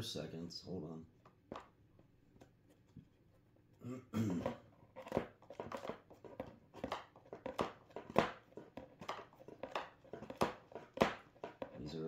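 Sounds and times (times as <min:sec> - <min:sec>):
knocks and clacks of items: 0:04.3 - 0:12.0.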